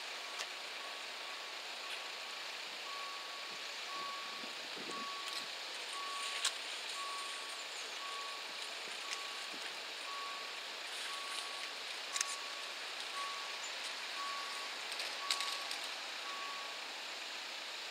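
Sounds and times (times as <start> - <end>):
crossing warning beeper: 0.0 - 16.9.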